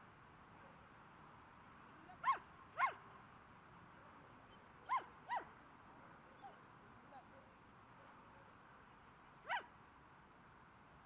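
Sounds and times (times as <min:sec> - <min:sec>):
dog yipping: 0:02.2 - 0:03.0, 0:04.9 - 0:05.5, 0:09.4 - 0:09.7.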